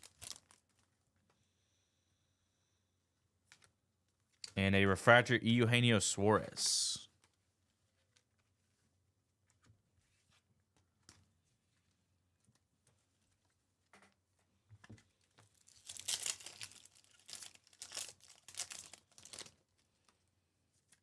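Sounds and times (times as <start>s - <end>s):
foil wrapper tearing and crinkling: 0.0s - 0.6s, 15.5s - 19.9s.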